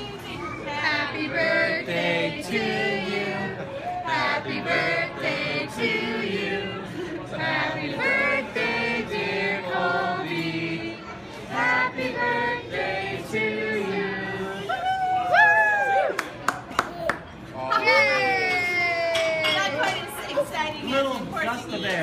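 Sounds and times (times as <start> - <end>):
group singing together: 0.7 - 14.8.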